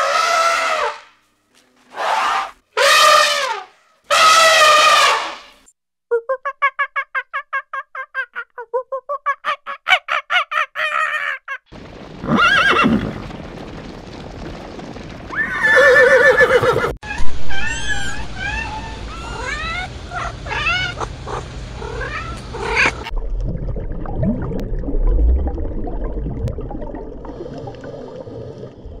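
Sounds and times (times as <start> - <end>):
horse whinnying: 12.2 - 13.2, 15.3 - 17.0
low underwater rumble: 23.1 - 29.0.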